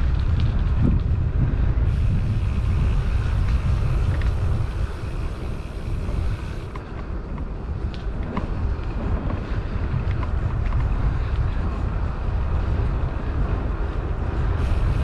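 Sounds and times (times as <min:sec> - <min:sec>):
bicycle tyre noise: 0:00.0 - 0:15.0
wind buffeting microphone: 0:00.0 - 0:15.0
small rattling ticks: 0:01.9 - 0:07.0.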